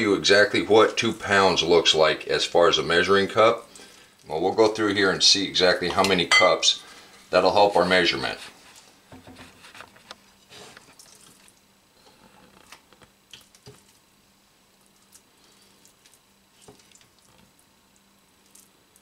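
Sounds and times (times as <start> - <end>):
spatula scraping and squishing food: 14.9 - 17.7.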